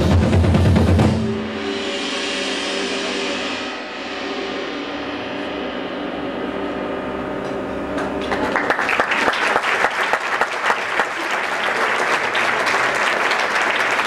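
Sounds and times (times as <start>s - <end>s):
audience applauding: 8.0s - 14.0s.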